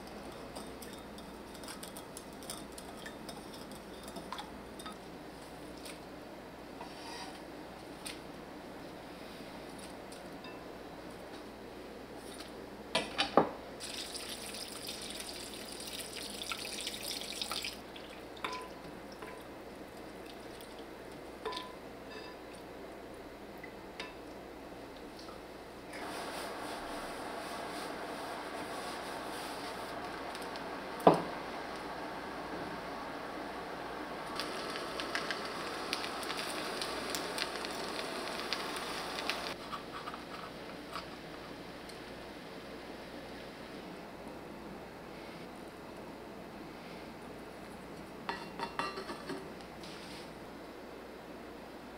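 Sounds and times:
steady hiss: 0:26.0 - 0:39.6.

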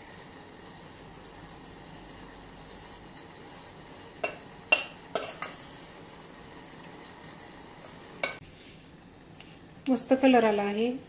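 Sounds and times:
metal spoon clinking on pan: 0:04.2 - 0:05.6.

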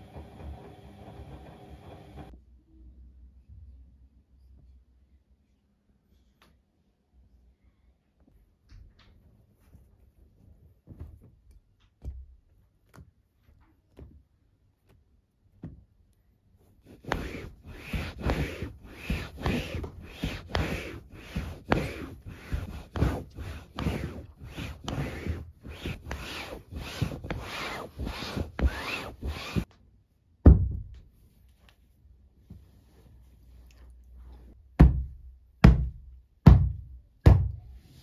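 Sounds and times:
towel scrubbing a cushion: 0:16.6 - 0:29.7
thump: 0:30.4 - 0:31.0.

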